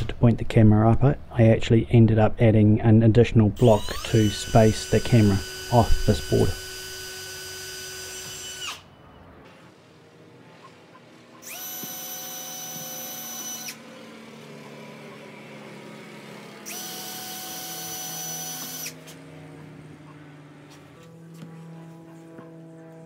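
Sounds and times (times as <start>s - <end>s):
cordless drill whining: 3.6s - 8.9s, 11.4s - 14.8s, 16.6s - 19.2s.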